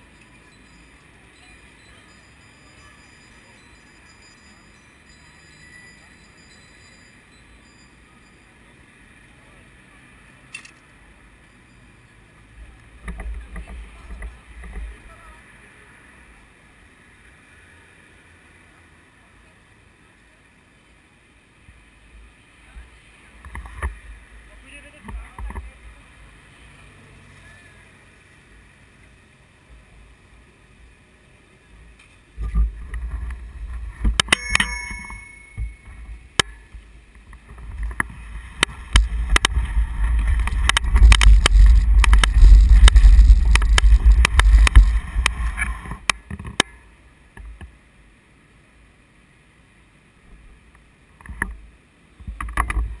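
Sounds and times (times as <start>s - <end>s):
tyre noise: 34.9s - 46.3s
wind noise: 37.2s - 46.6s
bicycle camera rattling: 37.7s - 46.5s.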